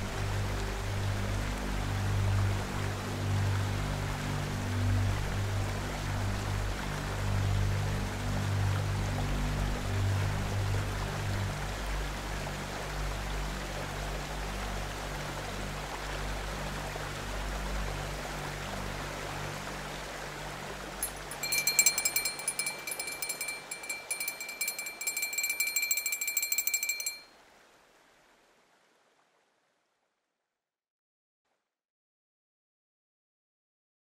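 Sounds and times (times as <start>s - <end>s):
alarm bell ringing rapidly: 21.0s - 27.3s.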